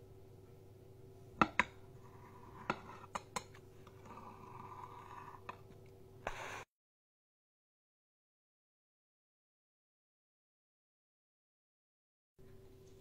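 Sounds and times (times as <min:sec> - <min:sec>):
knife scraping plate: 0:02.0 - 0:05.6.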